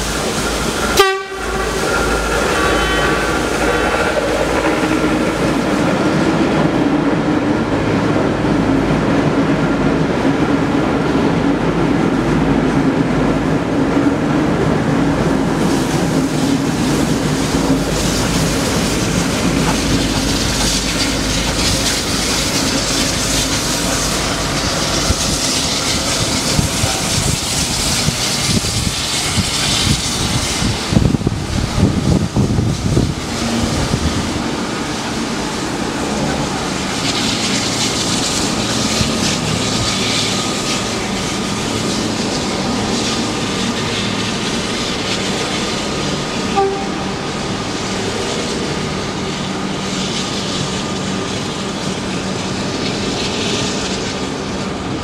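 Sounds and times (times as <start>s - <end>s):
train roar: 0.0s - 55.0s
wheels clicking over rail joints: 16.7s - 29.9s.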